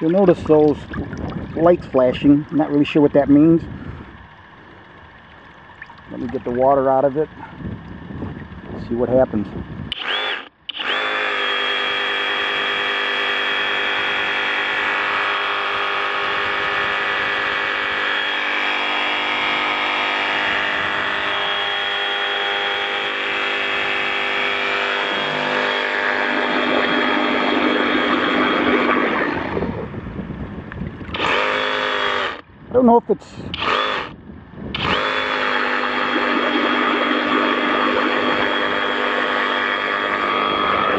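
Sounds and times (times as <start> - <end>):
water churning and splashing: 0.0 - 8.6, 12.0 - 30.1, 34.8 - 40.9
reciprocating saw running: 9.9 - 29.9, 31.1 - 32.4, 33.5 - 40.9.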